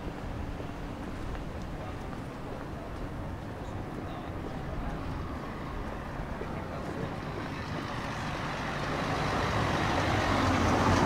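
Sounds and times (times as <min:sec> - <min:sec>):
vehicle engine approaching: 0:03.6 - 0:11.0.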